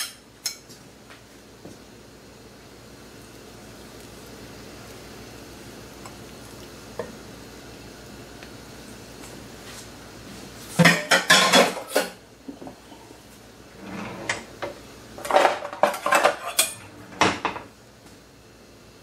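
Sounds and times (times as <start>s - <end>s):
utensils and dishes clattering: 10.8s - 12.2s, 15.2s - 17.6s.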